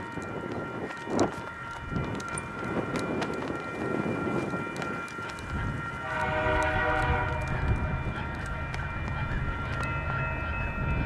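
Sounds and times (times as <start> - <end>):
diesel locomotive rumbling: 0.0 - 11.0
steady high tones: 0.0 - 11.0.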